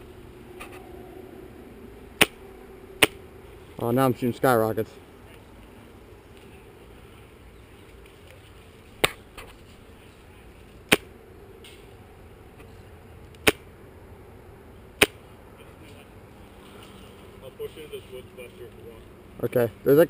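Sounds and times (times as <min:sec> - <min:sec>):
airsoft rifle shots: 0:02.2 - 0:02.4, 0:10.9 - 0:11.1.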